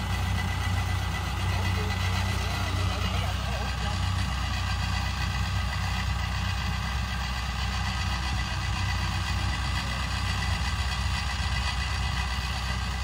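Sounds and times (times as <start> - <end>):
small engine idling: 0.0 - 13.0.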